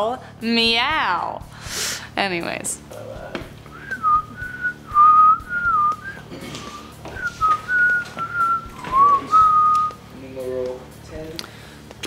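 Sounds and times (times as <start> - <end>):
woman whistling a tune: 3.7 - 10.0.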